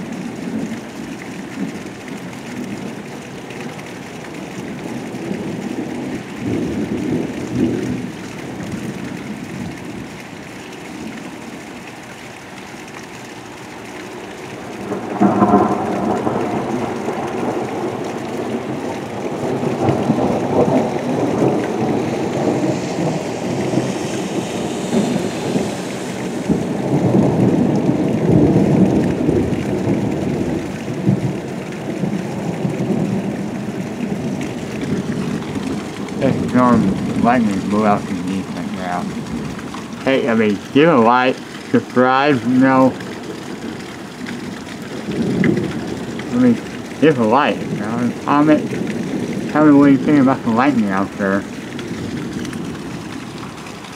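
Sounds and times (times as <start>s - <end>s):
thunder rumbling: 0.0s - 10.2s, 13.7s - 53.9s
steady rain: 0.0s - 53.9s.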